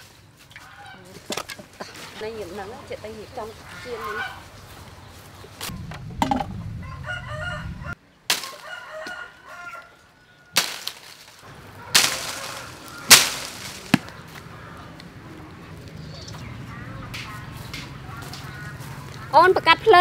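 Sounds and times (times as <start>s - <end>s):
rooster crowing: 6.8s - 10.6s.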